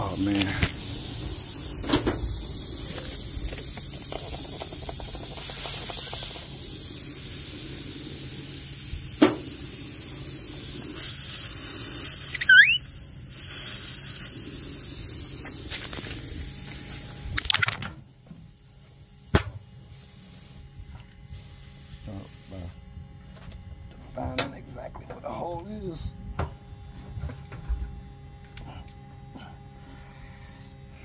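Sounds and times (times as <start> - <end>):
steady background hiss: 0.0 - 17.2
rubber squeal: 12.3 - 12.9.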